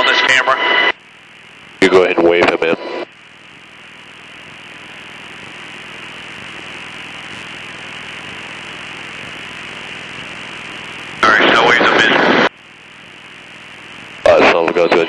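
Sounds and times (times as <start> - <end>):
helicopter noise through intercom: 11.2 - 12.3.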